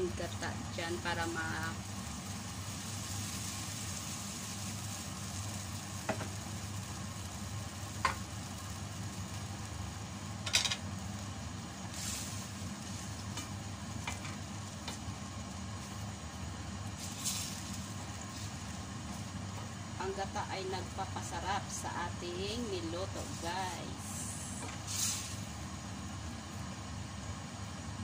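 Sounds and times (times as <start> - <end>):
faint sizzle in a pot: 0.0 - 28.0
steady low hum: 0.0 - 28.0.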